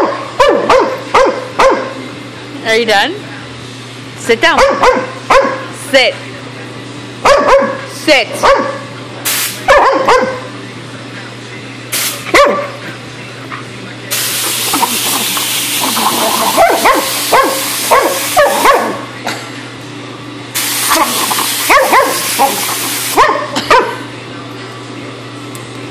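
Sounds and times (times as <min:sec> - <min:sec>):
air blow gun hissing: 0:09.3 - 0:09.6, 0:11.9 - 0:12.3, 0:14.1 - 0:18.7, 0:20.6 - 0:23.2
puppy barking and yipping: 0:16.5 - 0:19.0, 0:21.7 - 0:22.6, 0:23.2 - 0:24.0.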